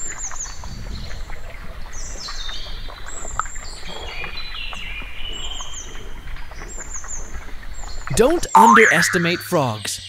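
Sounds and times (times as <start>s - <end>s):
birds whistling high notes: 8.6s - 10.0s.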